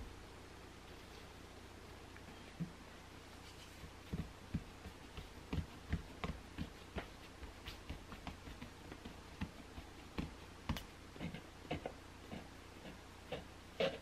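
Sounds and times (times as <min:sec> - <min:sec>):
fingertips patting dough on board: 0:03.7 - 0:14.0.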